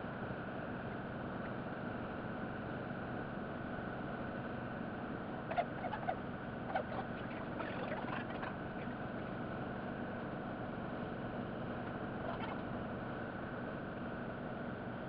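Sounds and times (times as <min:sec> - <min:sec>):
faint squeaks and clicks: 0:05.5 - 0:09.0, 0:11.8 - 0:12.7.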